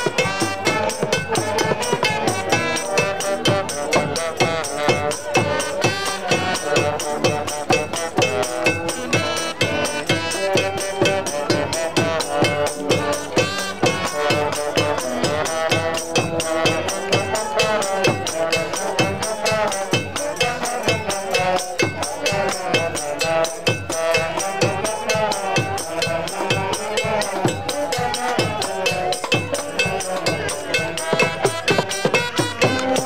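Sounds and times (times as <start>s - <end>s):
brass band playing: 0.0s - 33.0s
drums and cymbals: 0.0s - 33.0s.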